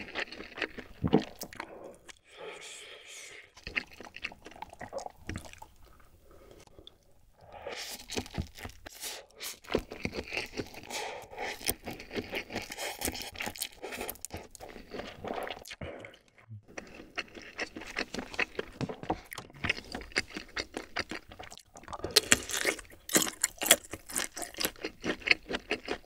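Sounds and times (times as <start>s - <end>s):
slurping and chewing noodles: 0.0s - 26.0s.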